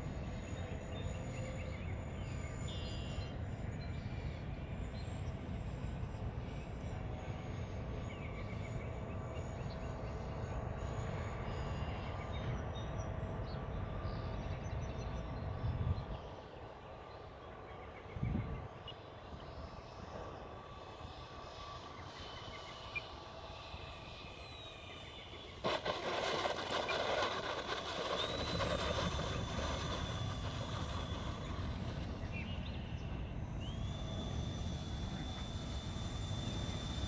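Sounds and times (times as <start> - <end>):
model airplane motors whining: 0.0 - 37.0.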